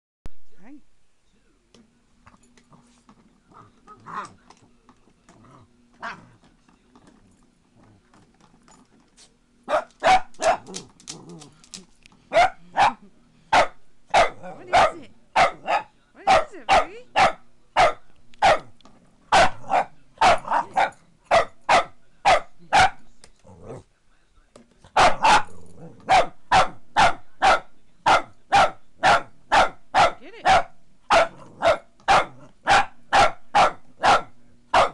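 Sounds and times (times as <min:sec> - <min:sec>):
dog barking: 0:09.7 - 0:10.8, 0:12.3 - 0:18.7, 0:19.3 - 0:23.0, 0:24.9 - 0:34.9.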